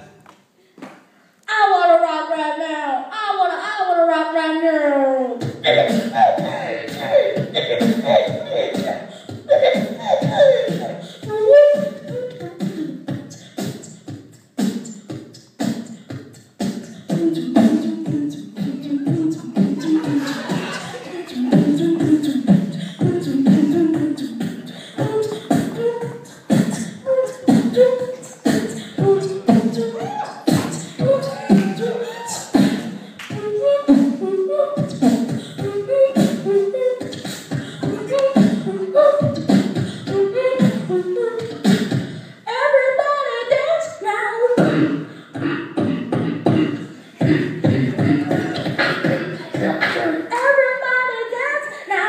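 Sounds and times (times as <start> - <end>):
wavering vocal line: 1.5 - 52.0
amplified beatboxing: 5.2 - 52.0.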